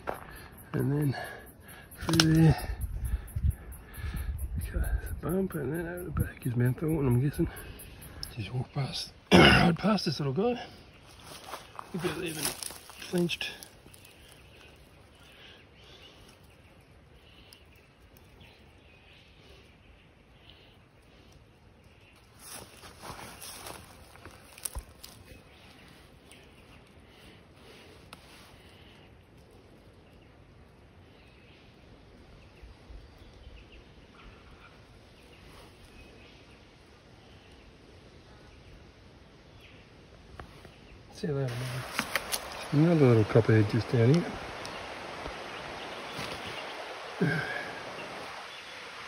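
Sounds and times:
bird chirps: 0.0 - 9.2
distant birds chirping: 0.0 - 49.0
faint even hiss: 40.4 - 49.0.

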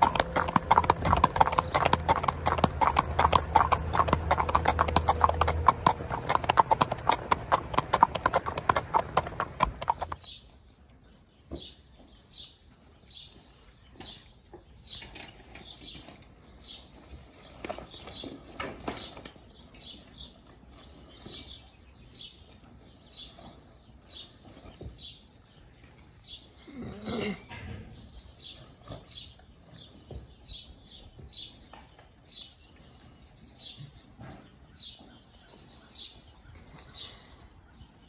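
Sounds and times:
horse hooves clip-clopping on road: 0.0 - 10.3
saddle clinks and knocks: 0.0 - 10.3, 14.0 - 21.6, 28.5 - 36.2
small birds chirping: 0.0 - 38.0.

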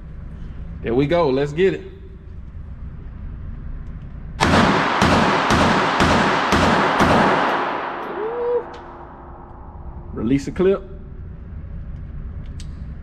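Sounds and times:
pistol shots echoing indoors: 4.4 - 10.1.

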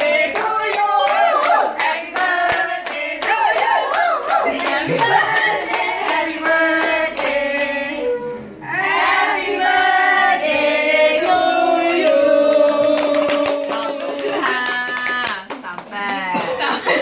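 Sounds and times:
people clapping: 0.0 - 7.8, 12.0 - 17.0
group of people singing together: 0.0 - 14.9.

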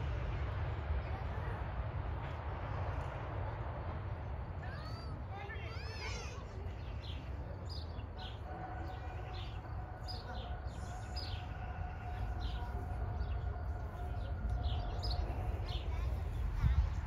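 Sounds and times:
faint hum: 0.0 - 17.0
bird chirping: 6.7 - 16.8.

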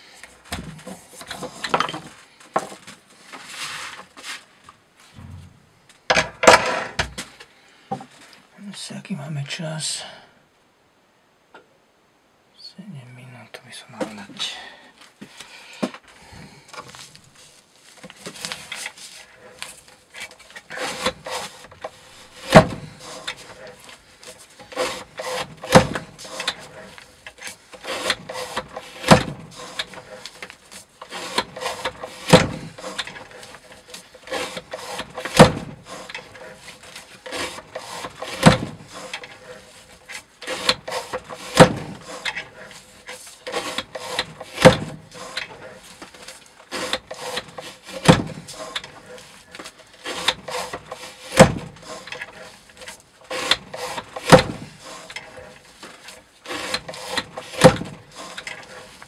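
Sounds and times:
blade rasping through rope: 17.0 - 59.0.

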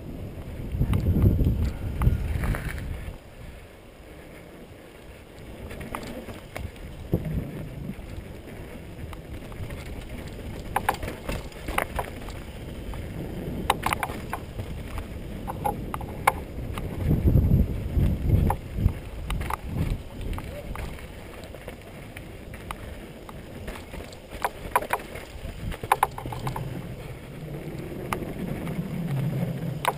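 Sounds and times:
bike tyres rumbling over dirt: 0.0 - 29.9
bike clacking and rattling: 5.5 - 27.3, 28.1 - 29.9.

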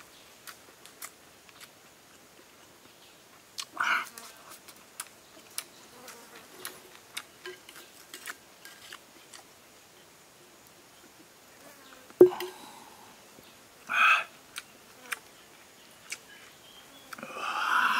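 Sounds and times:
person chewing crunchy herbs: 0.4 - 2.2, 3.6 - 9.5
sharp knock with ring: 12.2 - 12.6
mouth sound: 12.2 - 13.1.

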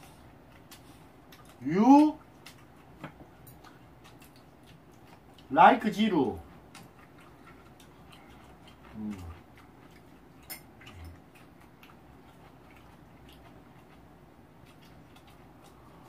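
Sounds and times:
soft chewing: 0.0 - 16.0
person humming: 8.9 - 9.4.

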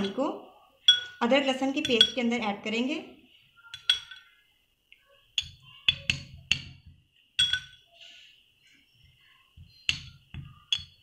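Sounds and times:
spoon clinking on glass dish: 0.8 - 2.3, 3.6 - 4.4, 5.4 - 7.9, 9.9 - 11.0.

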